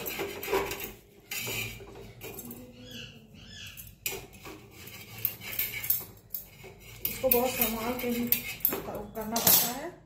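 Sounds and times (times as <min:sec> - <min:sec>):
metal tools scraping iron pan: 0:00.0 - 0:10.0
high squeaky chirps: 0:02.4 - 0:04.1.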